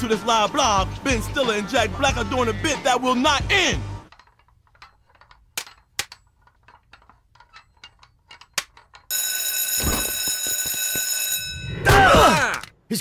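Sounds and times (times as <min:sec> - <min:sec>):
electric alarm bell ringing: 0:09.1 - 0:11.9.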